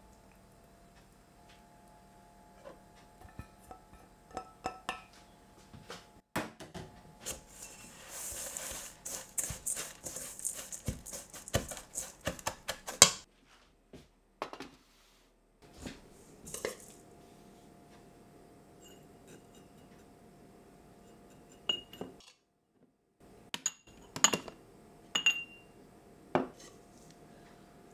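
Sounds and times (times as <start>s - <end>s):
glass jars clinking: 3.2s - 5.1s, 21.6s - 22.2s, 25.2s - 25.6s
spatula scraping mixing bowl: 7.2s - 13.3s.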